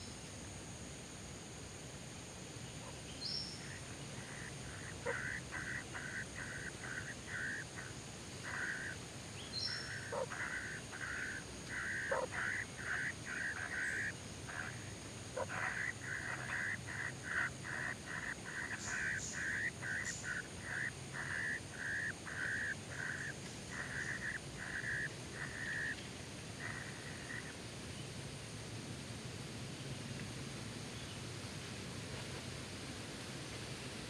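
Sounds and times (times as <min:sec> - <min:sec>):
kingfisher harsh calls: 0:04.4 - 0:09.0, 0:09.6 - 0:14.8, 0:15.4 - 0:25.9.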